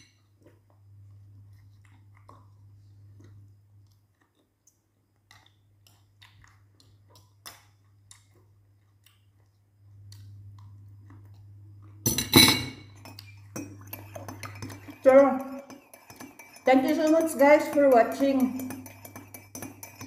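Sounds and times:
low steady hum: 0.0 - 20.0
quiet chewing: 0.4 - 12.0
spoon scraping glass bowl: 12.2 - 20.0.

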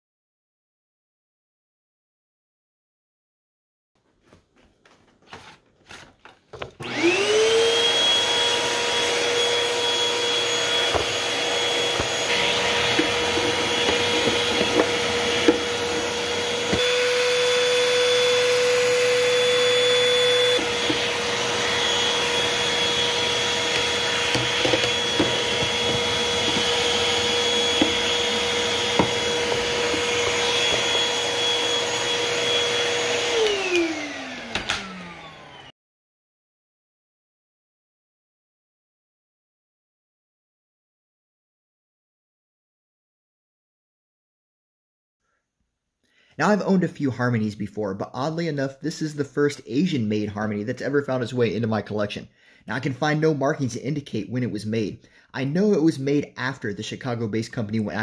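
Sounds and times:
vacuum cleaner motor whine: 6.8 - 35.7.

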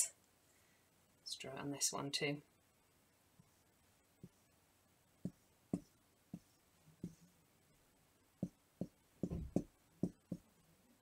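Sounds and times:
marker drawing on whiteboard: 3.4 - 4.6, 5.2 - 7.4, 8.4 - 10.6.

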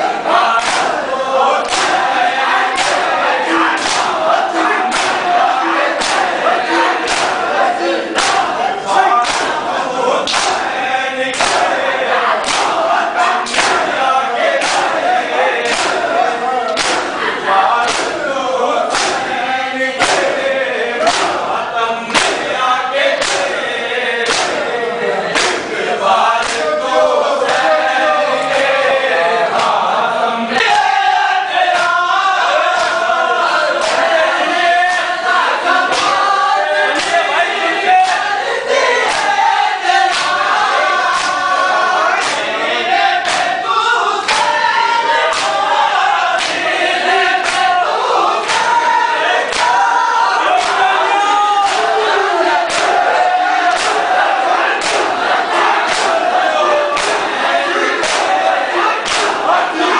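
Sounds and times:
crowd of men chanting: 0.0 - 59.9
hands slapping chests: 0.5 - 1.0, 1.6 - 18.2, 18.9 - 19.4, 20.0 - 21.5, 22.1 - 22.6, 23.2 - 23.6, 24.2 - 24.7, 25.3 - 25.7, 26.4 - 26.7, 29.5 - 29.8, 31.7 - 32.0, 32.7 - 33.2, 33.8 - 34.1, 35.8 - 36.3, 36.9 - 37.3, 38.0 - 38.3, 39.0 - 39.4, 40.1 - 40.4, 41.0 - 41.6, 42.2 - 42.5, 43.2 - 43.6, 44.2 - 44.6, 45.3 - 45.6, 46.4 - 46.6, 47.4 - 47.8, 48.4 - 48.8, 49.4 - 49.9, 50.5 - 51.0, 51.6 - 52.0, 52.6 - 56.3, 56.9 - 57.3, 58.0 - 59.9.

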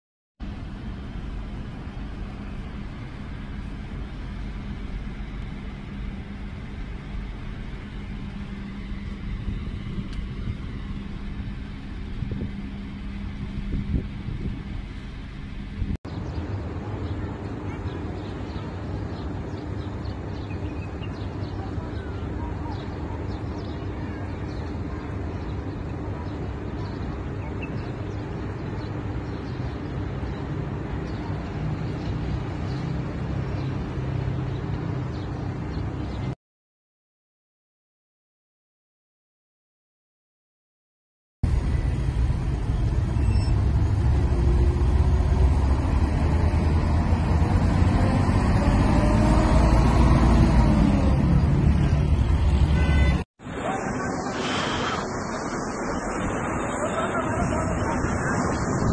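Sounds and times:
low rumble of city ambience: 0.4 - 36.4, 41.4 - 58.9
faint bird chirps: 43.1 - 43.6
faint rising and falling tone: 53.4 - 58.9.

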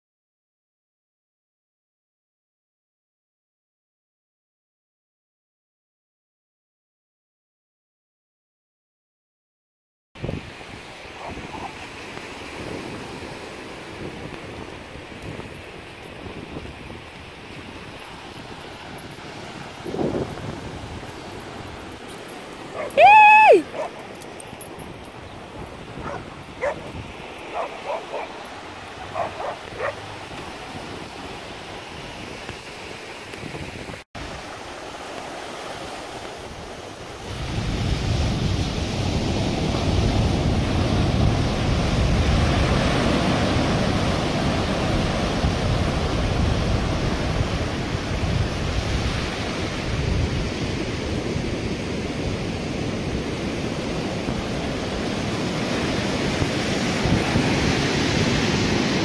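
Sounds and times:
wind buffeting microphone: 10.2 - 32.6, 36.5 - 59.0
ocean surf breaking: 10.2 - 59.0
dog whining: 22.7 - 24.0, 26.0 - 26.9, 29.2 - 30.0.

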